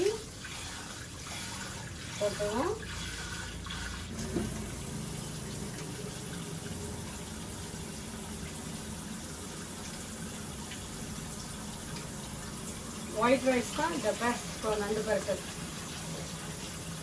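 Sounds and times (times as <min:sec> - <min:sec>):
rice rinsed by hand: 0:00.0 - 0:17.0
tap running into a pot: 0:04.2 - 0:04.8.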